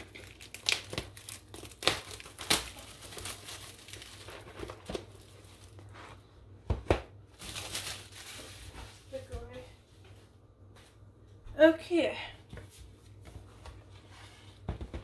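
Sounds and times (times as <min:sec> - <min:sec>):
plastic wrap crinkling and tearing: 0:00.0 - 0:06.0, 0:07.3 - 0:09.0.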